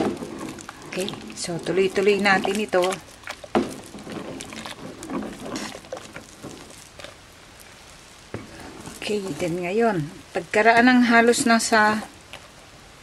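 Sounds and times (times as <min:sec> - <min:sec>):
ladle scraping in metal pot: 0:00.0 - 0:07.0.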